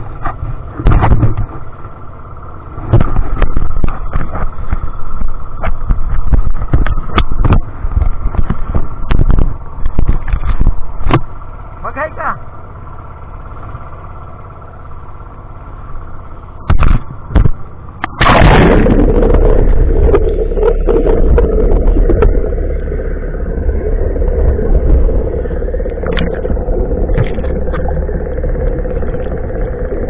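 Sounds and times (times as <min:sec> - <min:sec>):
engine running: 0:00.0 - 0:30.0
muffled underwater rumble: 0:00.0 - 0:30.0
underwater crackles: 0:16.7 - 0:30.0
loud splash: 0:18.2 - 0:22.2.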